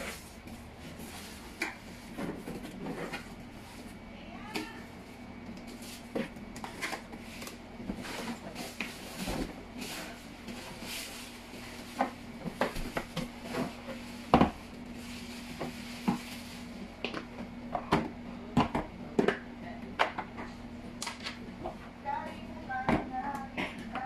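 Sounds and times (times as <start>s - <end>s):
plastic wrapping rustling: 5.7s - 16.8s.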